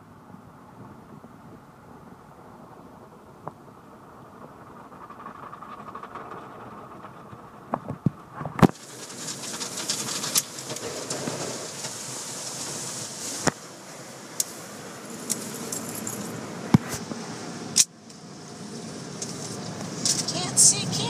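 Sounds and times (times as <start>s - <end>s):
water spraying on car: 8.6s - 16.7s.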